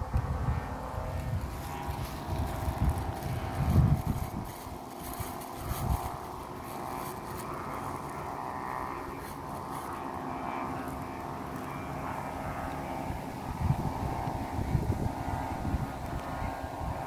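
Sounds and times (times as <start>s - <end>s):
kite hummer droning: 0.0s - 17.0s
wind buffeting microphone: 0.0s - 17.0s.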